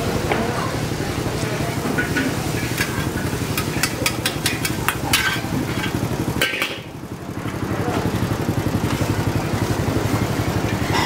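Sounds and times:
metal utensils clanking on wok: 0:01.5 - 0:06.9.

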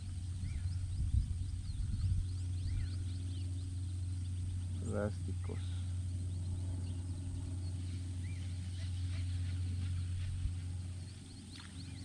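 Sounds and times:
birds chirping: 0:00.0 - 0:12.0
steady low hum: 0:00.0 - 0:12.0.

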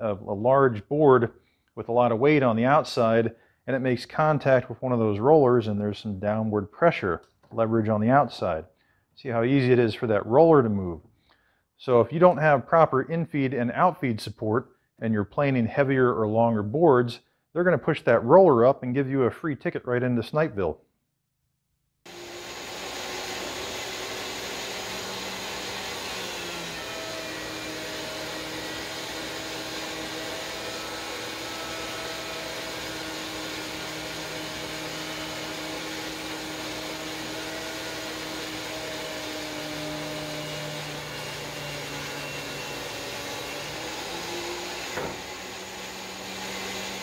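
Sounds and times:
thickness planer whining: 0:22.1 - 0:47.0.

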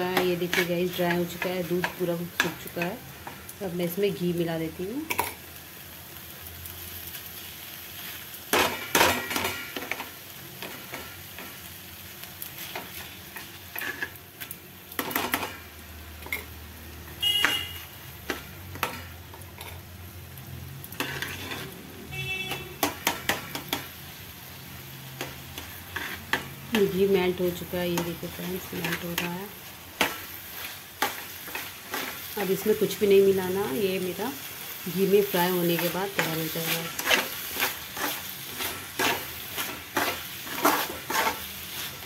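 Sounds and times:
mixture sizzling: 0:00.0 - 0:42.0
metal spoon scraping pan: 0:12.6 - 0:14.2, 0:20.9 - 0:21.9, 0:25.2 - 0:27.0, 0:27.9 - 0:32.9, 0:35.5 - 0:42.0.

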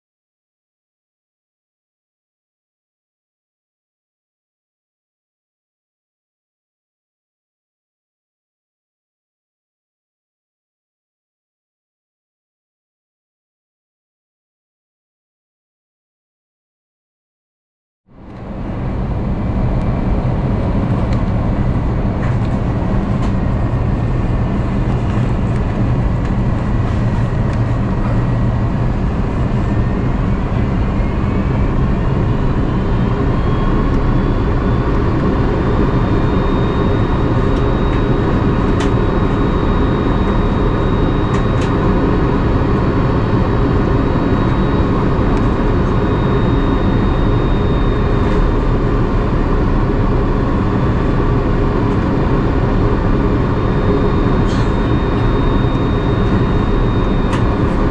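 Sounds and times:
airplane cabin engine roar: 0:18.1 - 0:57.9
faint rising whine: 0:18.1 - 0:57.9.

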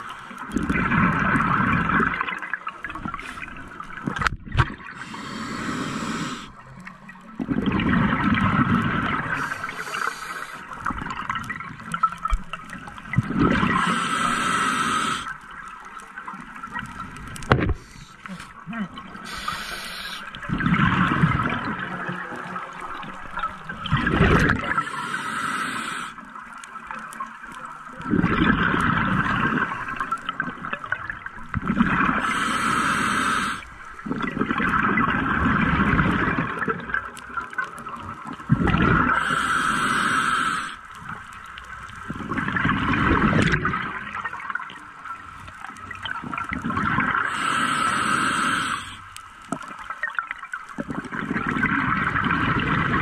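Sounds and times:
bubbling exhaled air: 0:00.0 - 0:06.8, 0:07.4 - 0:11.9, 0:13.0 - 0:15.5, 0:17.4 - 0:26.2, 0:28.0 - 0:37.0, 0:38.4 - 0:40.8, 0:42.0 - 0:44.7, 0:46.0 - 0:49.0, 0:50.8 - 0:53.0
hissing inhale through regulator: 0:04.9 - 0:06.6, 0:09.2 - 0:10.9, 0:13.6 - 0:15.5, 0:17.7 - 0:18.6, 0:19.2 - 0:20.4, 0:24.6 - 0:26.3, 0:32.1 - 0:33.8, 0:39.0 - 0:40.9, 0:47.2 - 0:49.2.

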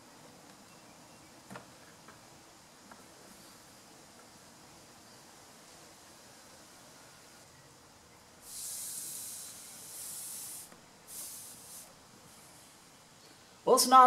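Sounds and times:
hissing air puffs: 0:08.4 - 0:13.2.

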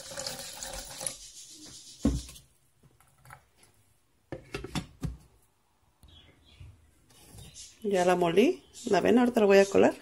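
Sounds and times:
water pouring into glass jar: 0:00.0 - 0:01.3.

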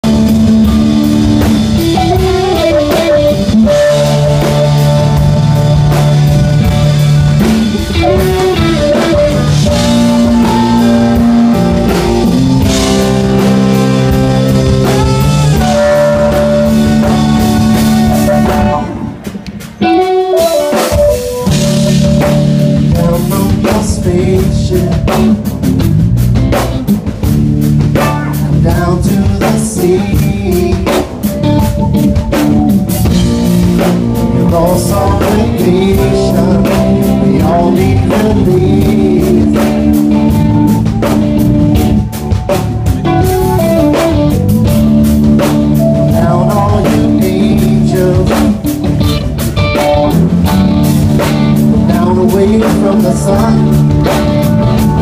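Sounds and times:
drum kit: 0:00.0 - 0:55.0
electric guitar: 0:00.0 - 0:55.0
horn section holding long notes: 0:01.8 - 0:19.3.

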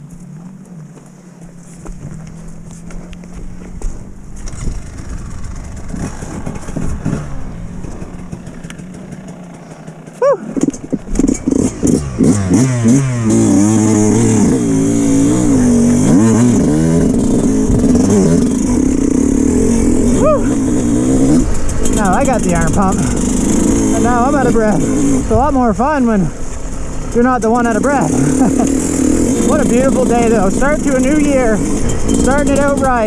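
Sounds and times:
dirt bike engine starting and revving: 0:00.0 - 0:33.0.

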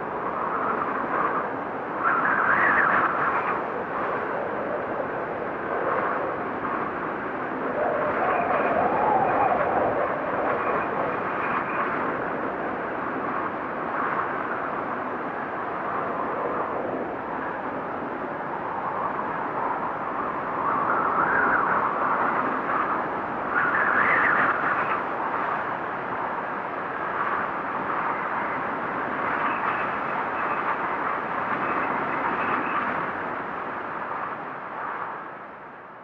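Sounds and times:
steady rushing snowfall ambience: 0:00.0 - 0:36.0.

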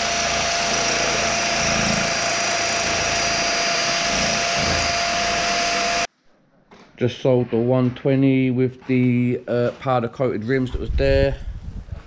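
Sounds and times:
drill whine: 0:00.0 - 0:06.1
electric drill running: 0:00.0 - 0:06.1.

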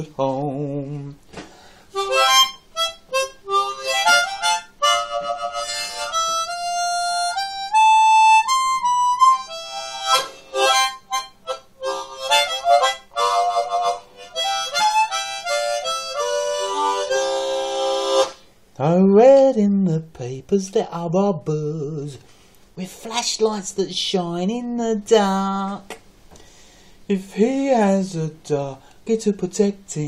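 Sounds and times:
harmonica playing: 0:01.9 - 0:18.5.

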